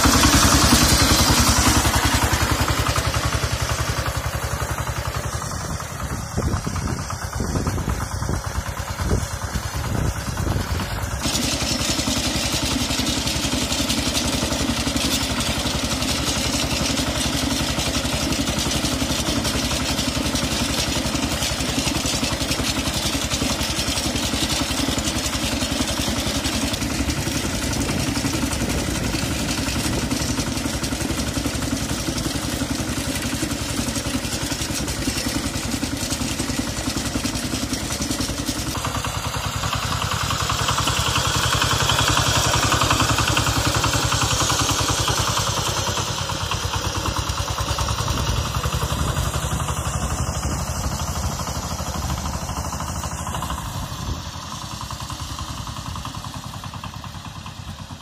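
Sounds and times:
single-cylinder diesel engine running: 0.0 - 58.0.

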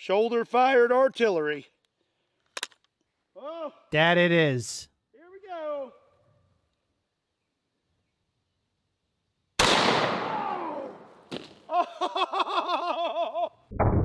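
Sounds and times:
man crying out: 3.4 - 3.9, 10.3 - 11.0, 11.7 - 13.6
rifle shot ringing out: 9.6 - 11.2.

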